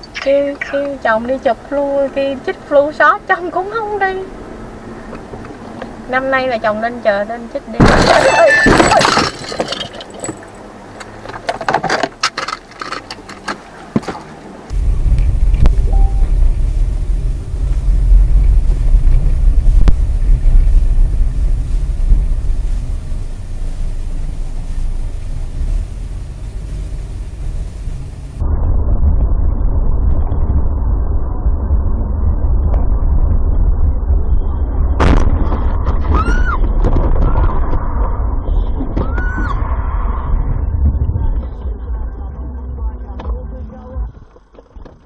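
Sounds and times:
car engine and road rumble: 0:00.0 - 0:45.0
high rising-and-falling sounds: 0:14.7 - 0:18.6.

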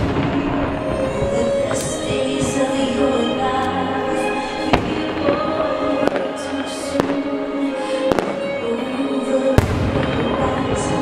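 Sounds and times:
firework shells bursting: 0:00.0 - 0:07.3
music: 0:00.0 - 0:11.0.

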